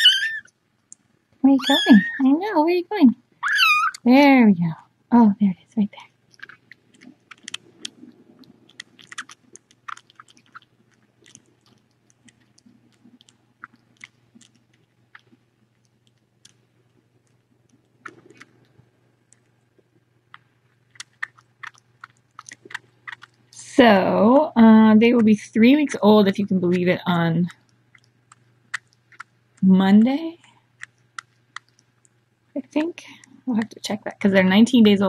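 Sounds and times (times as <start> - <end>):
kitten suckling wet clicks: 6.2 - 19.5, 20.3 - 23.6, 27.6 - 29.6, 30.8 - 32.2.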